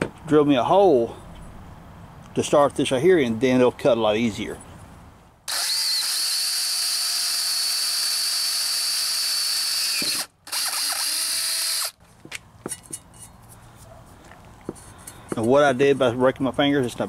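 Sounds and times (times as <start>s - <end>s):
power drill whining into steel: 5.5s - 12.0s.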